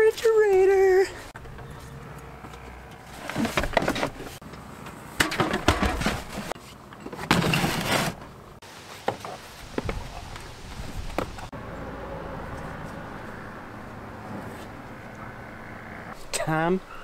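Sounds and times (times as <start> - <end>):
plastic box scraping slide: 7.3 - 8.2.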